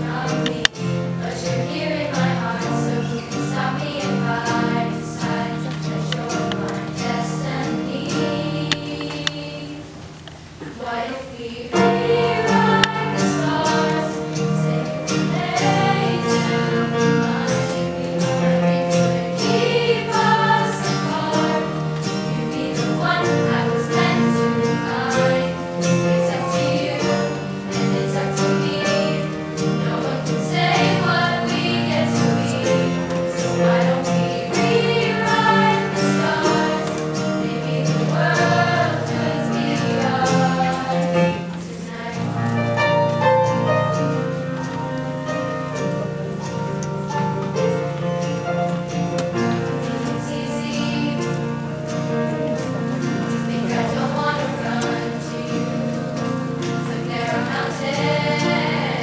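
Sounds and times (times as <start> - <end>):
children's chorus singing: 0.0 - 44.3, 49.3 - 59.0
acoustic guitar: 0.0 - 59.0.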